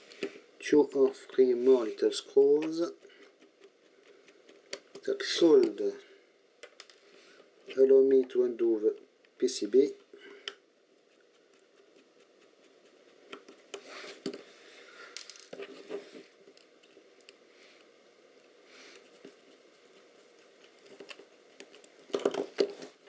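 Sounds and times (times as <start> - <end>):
faint scrapes: 1.3 - 4.4
rustling: 10.8 - 23.0.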